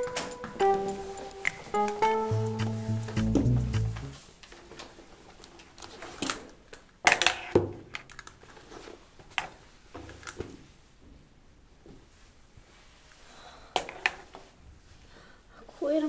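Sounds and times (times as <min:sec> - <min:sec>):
plucked guitar music: 0:00.0 - 0:04.2.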